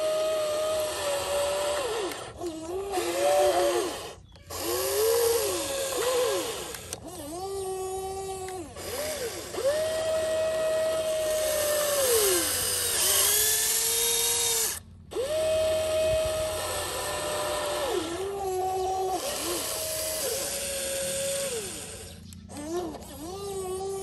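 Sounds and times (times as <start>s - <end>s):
toy excavator electric motors whining: 0.0s - 24.0s.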